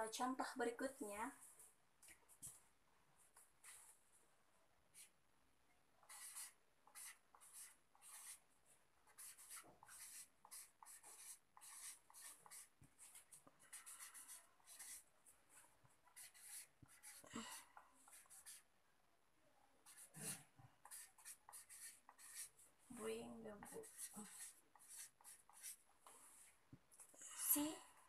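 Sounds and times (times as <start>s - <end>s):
pen writing on paper: 6.1s - 8.4s, 9.1s - 15.0s, 16.1s - 17.3s, 18.1s - 18.6s, 19.9s - 22.6s, 23.6s - 25.8s.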